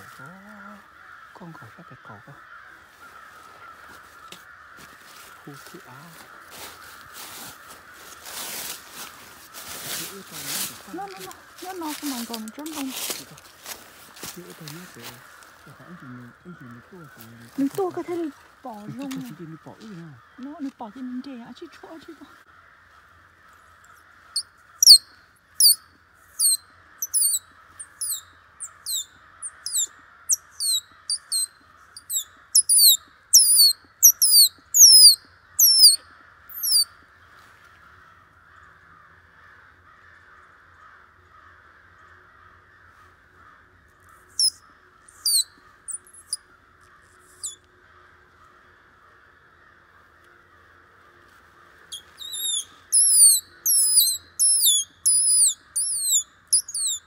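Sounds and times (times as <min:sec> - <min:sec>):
animal high sliding calls: 0:24.8 - 0:25.0, 0:26.4 - 0:36.8, 0:44.4 - 0:44.6, 0:45.2 - 0:46.4, 0:47.3 - 0:47.6, 0:51.9 - 0:57.0.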